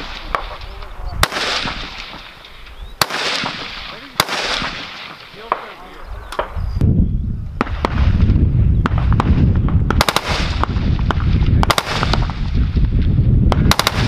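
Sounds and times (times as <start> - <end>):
rifle gunshots: 0.0 - 6.6, 8.8 - 12.8, 13.5 - 14.0.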